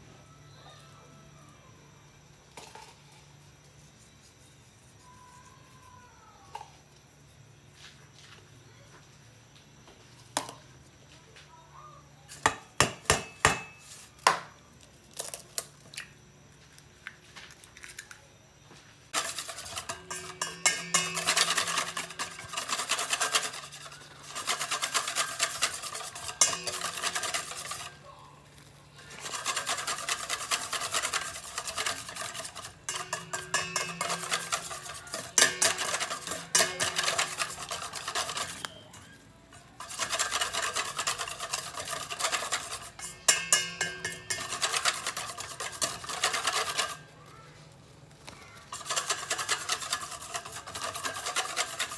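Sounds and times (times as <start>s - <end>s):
whisk beating batter in bowl: 19.2s - 47.2s, 48.2s - 51.9s.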